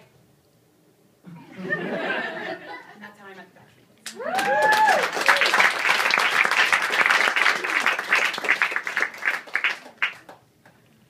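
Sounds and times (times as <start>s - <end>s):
audience applauding: 4.1s - 10.8s.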